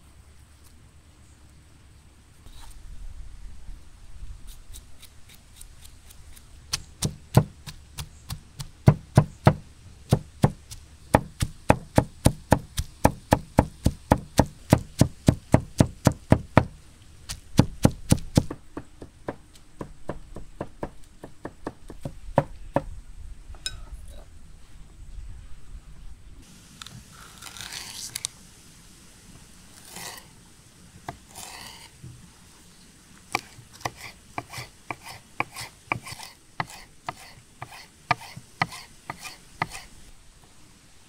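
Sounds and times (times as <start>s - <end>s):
knife chopping on wooden board: 6.7s - 16.8s, 17.6s - 22.9s, 33.4s - 39.8s.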